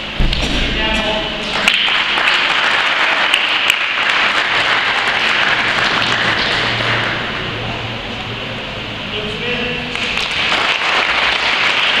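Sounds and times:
audience applauding: 1.6 - 7.3, 9.9 - 12.0.

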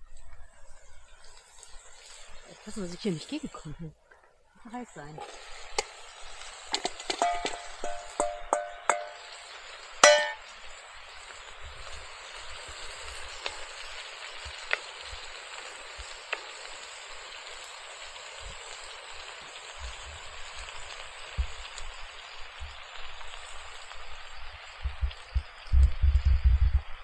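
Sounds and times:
food sizzling in pot: 0.0 - 27.0
popping: 5.2 - 11.0
metal clangs: 7.1 - 9.2, 10.0 - 10.5.

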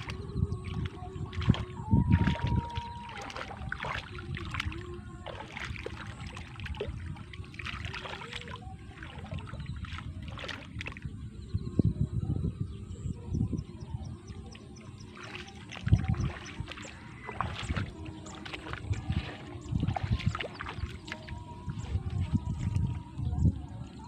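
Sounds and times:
hands splashing in muddy water: 0.0 - 11.0, 15.0 - 23.0.

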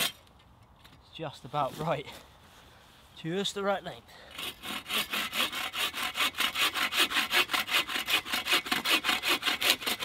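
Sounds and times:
bow saw cutting wood: 4.3 - 10.0.

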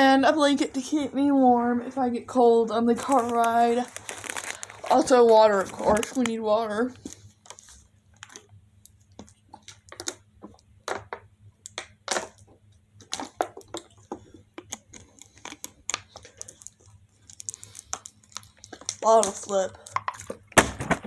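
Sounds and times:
plastic bottle crinkling: 2.8 - 8.5, 13.0 - 21.0.

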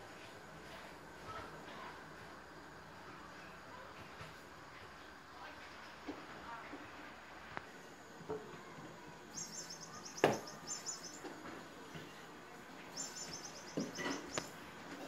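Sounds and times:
high chirping trills: 9.3 - 11.3, 12.8 - 14.7.

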